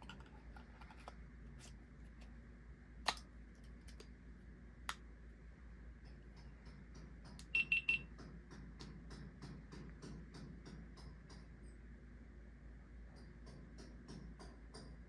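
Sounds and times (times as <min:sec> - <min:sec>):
short high-pitched beeps: 0:07.5 - 0:08.0.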